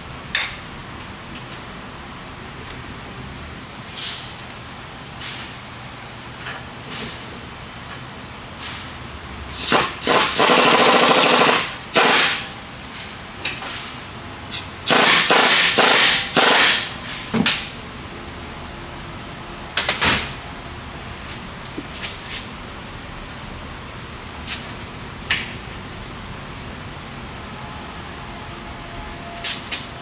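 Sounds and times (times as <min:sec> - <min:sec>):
pneumatic impact wrench hammering: 0:09.5 - 0:12.6, 0:14.5 - 0:17.7.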